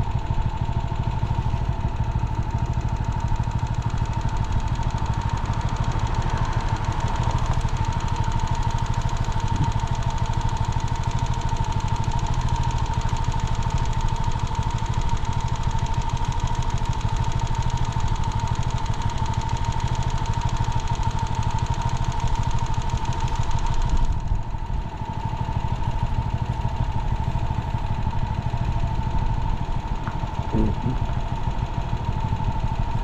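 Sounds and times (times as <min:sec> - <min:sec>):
vehicle engine rumbling: 0:00.0 - 0:10.2, 0:26.6 - 0:33.0.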